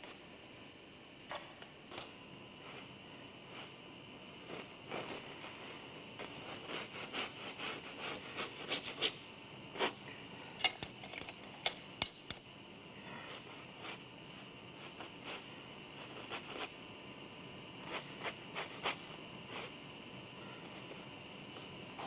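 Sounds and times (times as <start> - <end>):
paintbrush scraping canvas: 4.3 - 9.2.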